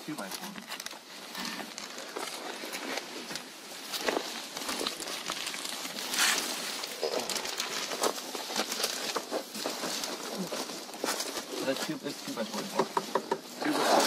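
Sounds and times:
insulation rustling and crinkling: 0:00.0 - 0:14.0.

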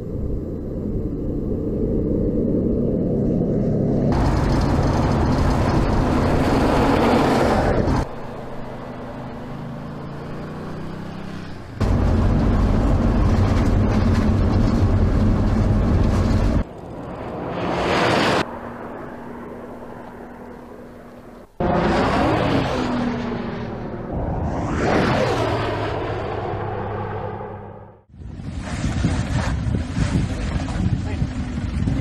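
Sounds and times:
car engine running hard: 0:04.1 - 0:17.5.

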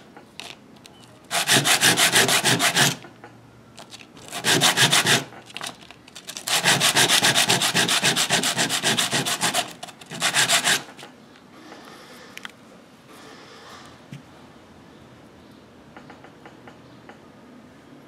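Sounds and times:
plastic pipe sanded by hand: 0:01.3 - 0:03.0, 0:04.2 - 0:05.3, 0:06.3 - 0:11.0.

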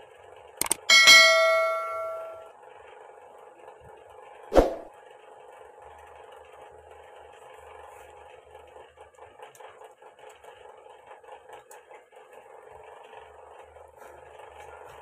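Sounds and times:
steady background hum: 0:00.6 - 0:02.5.

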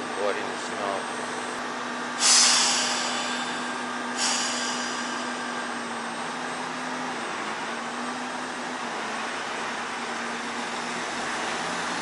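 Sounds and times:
diesel railcar engine running: 0:00.0 - 0:12.0
air brakes hissing: 0:02.1 - 0:06.4.

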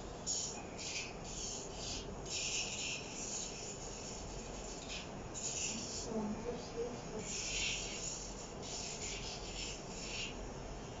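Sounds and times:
nail file rasping on claws: 0:00.3 - 0:06.1, 0:07.2 - 0:10.4.

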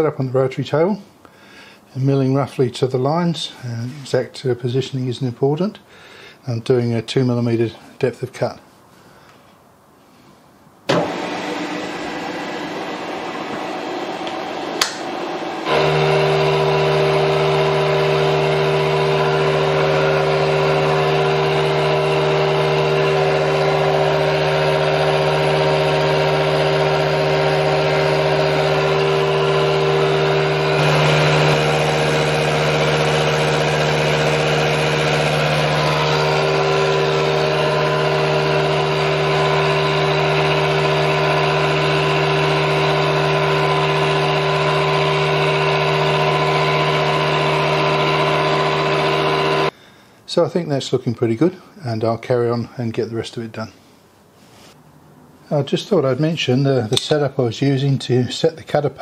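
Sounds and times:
milling machine humming: 0:10.9 - 0:49.7.

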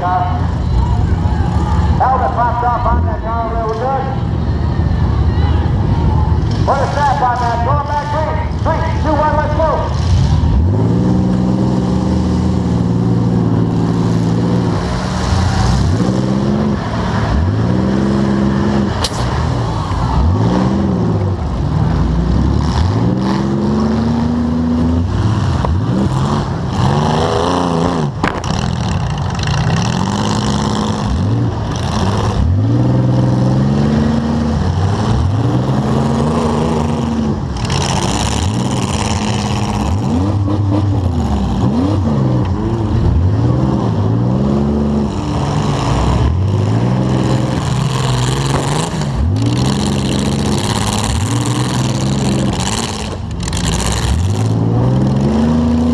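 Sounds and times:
car engine revving hard: 0:20.0 - 0:55.9.

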